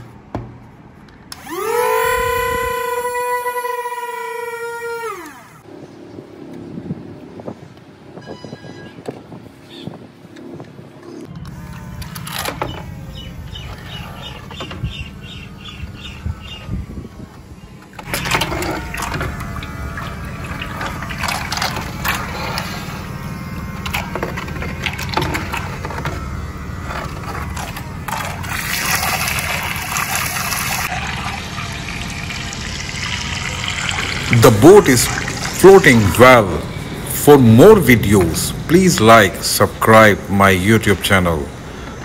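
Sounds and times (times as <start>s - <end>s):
small electric motor humming: 1.3s - 5.7s, 11.3s - 39.4s
propeller splashing water: 17.3s - 42.0s.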